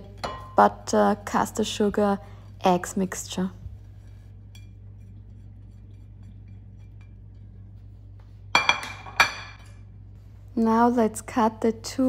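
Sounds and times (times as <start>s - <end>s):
low hum: 0.0s - 12.0s
spatula scraping a plate: 3.8s - 8.1s
plate clattering on countertop: 8.6s - 9.7s.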